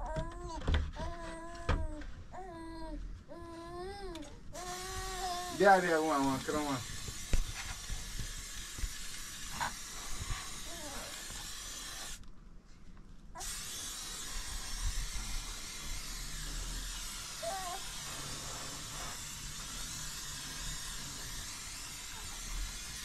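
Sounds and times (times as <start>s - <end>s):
aerosol spray can hissing: 4.6s - 12.2s, 13.4s - 23.0s.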